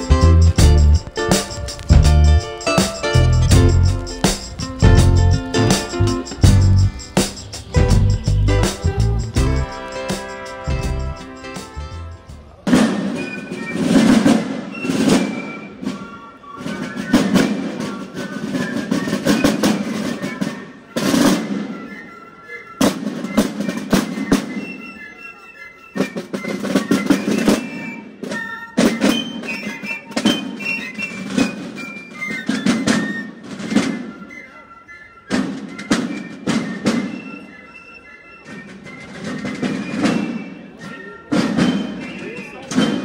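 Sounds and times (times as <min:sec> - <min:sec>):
fifes playing melody: 0:00.0 - 0:15.9
marching snare drums: 0:00.0 - 0:22.0, 0:22.8 - 0:24.8, 0:26.0 - 0:34.3, 0:35.3 - 0:37.5, 0:38.4 - 0:43.0.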